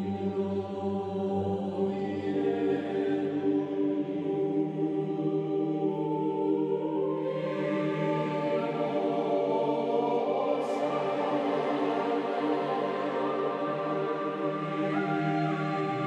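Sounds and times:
choir chanting low notes: 0.0s - 16.0s.

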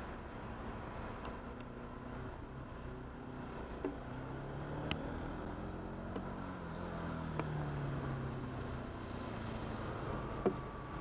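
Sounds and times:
wet hiss: 8.9s - 10.3s.

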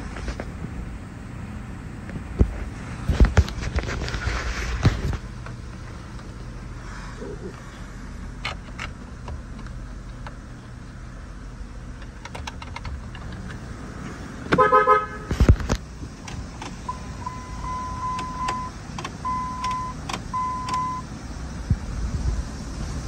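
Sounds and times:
stuttering car horn honk: 14.5s - 15.4s.

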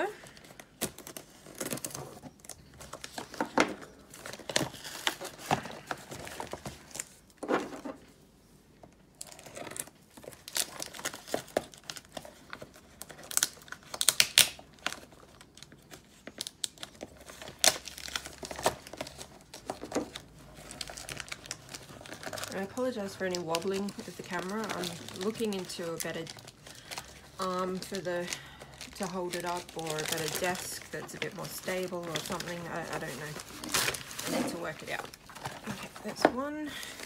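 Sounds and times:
wrapping crinkling and crackling: 0.0s - 7.9s, 8.9s - 37.0s
packing tape tearing: 9.2s - 28.0s, 28.8s - 36.1s.

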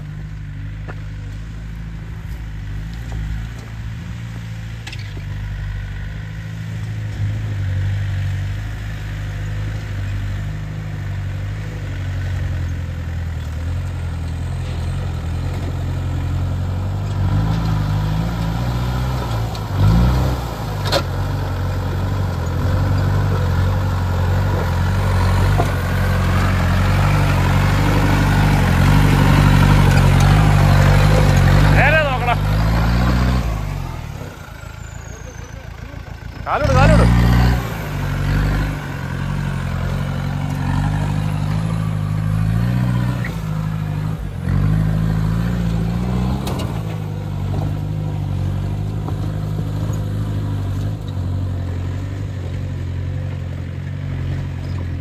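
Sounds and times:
off-road vehicle engine running: 0.0s - 55.0s.

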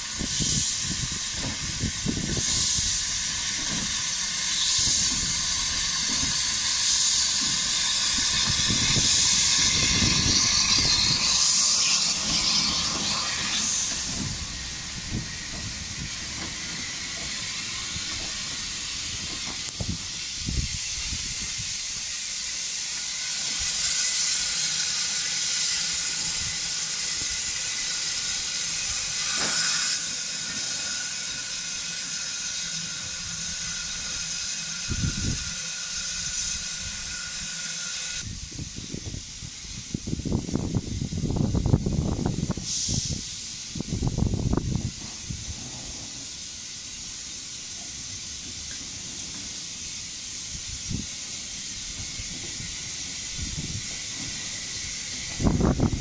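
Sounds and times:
steam locomotive hissing: 0.0s - 56.0s.

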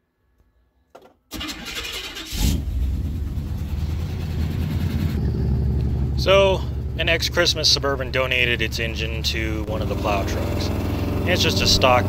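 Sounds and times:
car engine starting and running: 1.3s - 12.0s.

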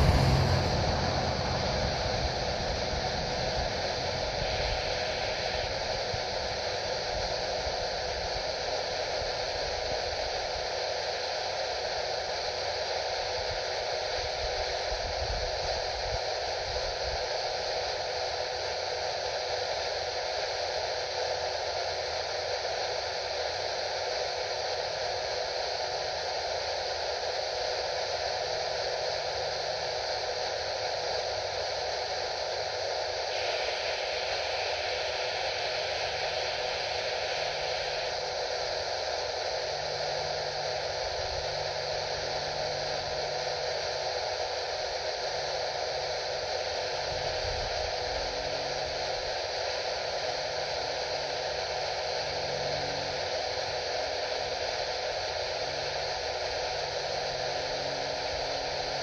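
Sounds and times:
radio static hiss: 33.2s - 42.8s.

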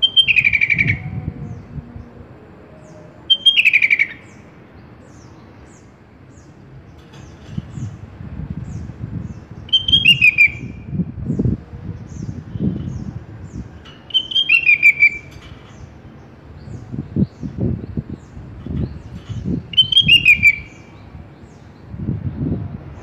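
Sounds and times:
bird calling with falling rattle: 6.9s - 8.0s, 13.8s - 16.0s, 18.6s - 21.0s.

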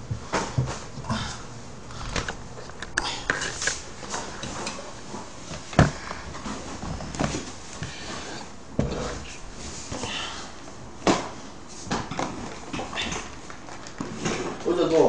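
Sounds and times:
knocks and thumps of objects: 5.8s - 6.0s.

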